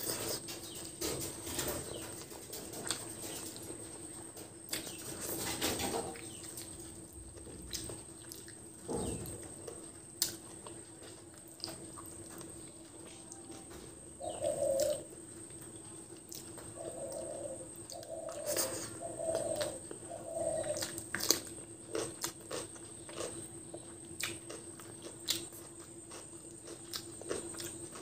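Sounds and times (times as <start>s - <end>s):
faint hum: 0.0s - 28.0s
pigeon cooing: 4.8s - 7.0s, 13.5s - 15.4s, 16.4s - 21.5s
wet chewing and lip smacks: 7.4s - 8.7s, 20.8s - 28.0s.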